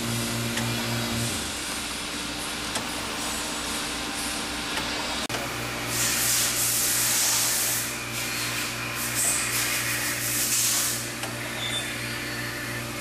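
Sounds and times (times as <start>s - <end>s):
printing machine humming: 0.0s - 6.0s, 7.6s - 13.0s
air hiss: 5.9s - 11.1s.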